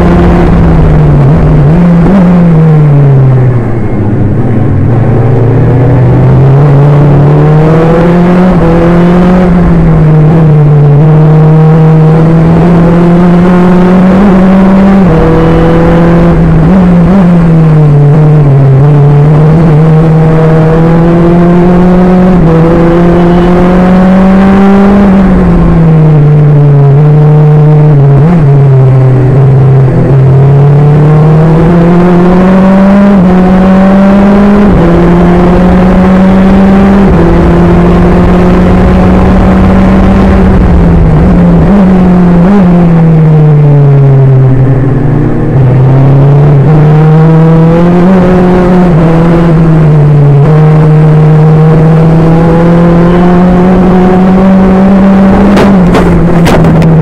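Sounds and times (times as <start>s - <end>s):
racing car engine at speed: 0.0s - 57.0s
sharp knocks: 55.3s - 56.9s.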